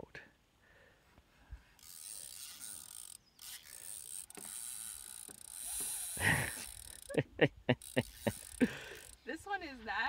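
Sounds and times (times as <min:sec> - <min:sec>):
fishing reel drag clicking: 0:01.8 - 0:07.2, 0:07.8 - 0:09.3.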